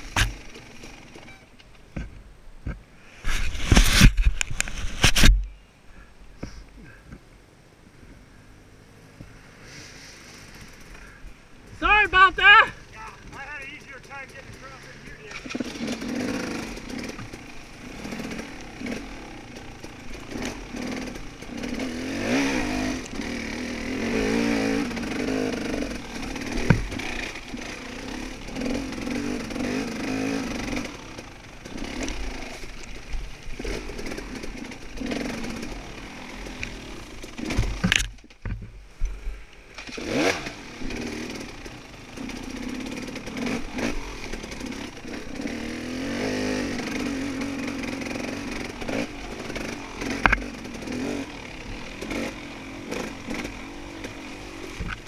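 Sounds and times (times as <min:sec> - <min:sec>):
dirt bike engine revving: 0:09.9 - 0:38.1, 0:39.8 - 0:55.0.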